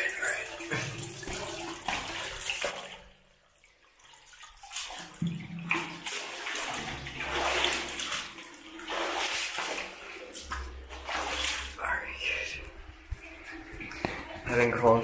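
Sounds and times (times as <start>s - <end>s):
water splashing and sloshing: 0.0s - 15.0s.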